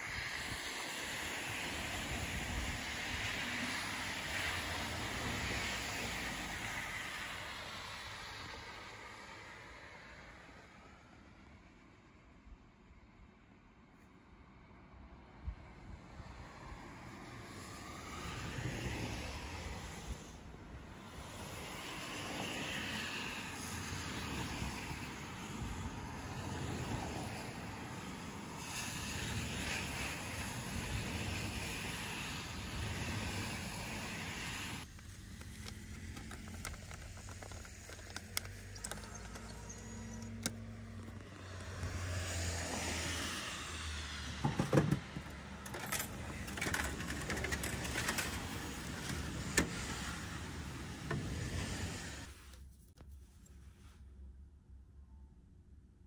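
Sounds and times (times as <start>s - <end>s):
outdoor background noise: 0.0s - 56.0s
sharp clicks: 34.9s - 41.2s.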